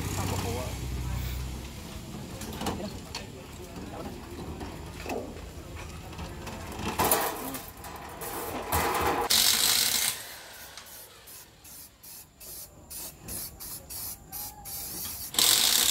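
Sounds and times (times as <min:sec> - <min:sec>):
spray-paint can hissing: 0:09.4 - 0:15.9.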